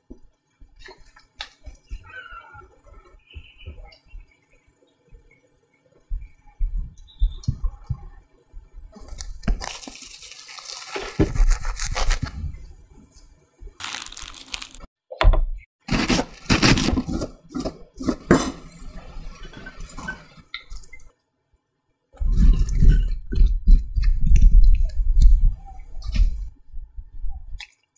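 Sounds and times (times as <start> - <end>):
cling film crinkling: 9.0 - 12.4, 13.8 - 14.9
toasted bread crunching: 9.2 - 12.3, 13.8 - 14.9
cabbage being chopped: 10.6 - 12.3, 15.9 - 17.8.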